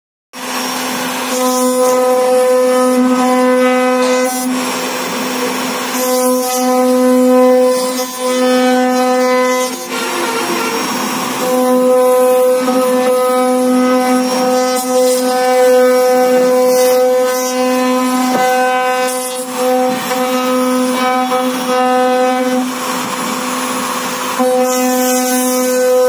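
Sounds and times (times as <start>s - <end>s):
router bit cutting wood: 0.4s - 26.0s
router spindle whine: 0.4s - 26.0s.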